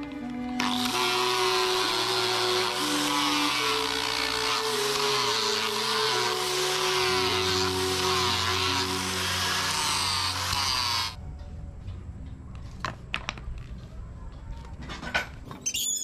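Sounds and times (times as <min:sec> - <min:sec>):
background music: 0:00.0 - 0:12.3
angle grinder sanding wood: 0:00.6 - 0:11.2.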